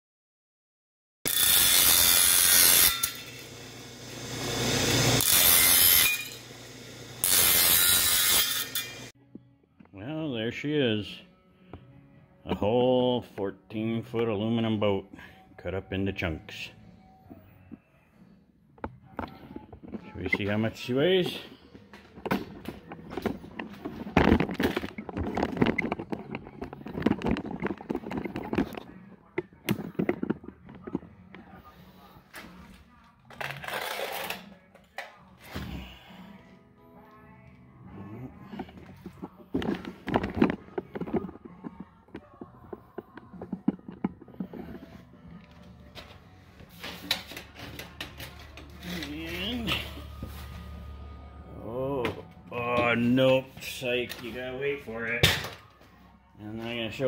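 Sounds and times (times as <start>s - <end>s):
circular saw cutting metal: 1.3s - 9.1s.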